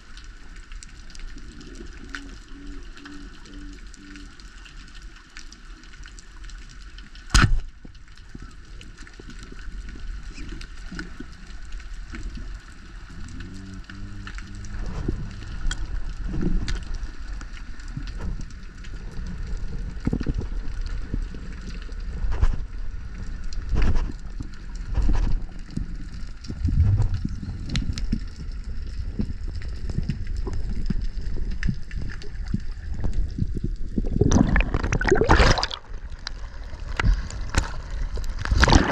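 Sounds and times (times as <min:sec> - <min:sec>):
underwater rumbling: 0:00.0 - 0:38.9
speargun snap underwater: 0:07.3 - 0:07.6.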